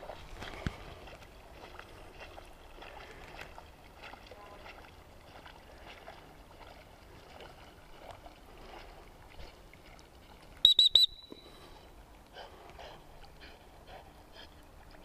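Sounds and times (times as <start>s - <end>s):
dog whistle toots: 10.6s - 11.4s.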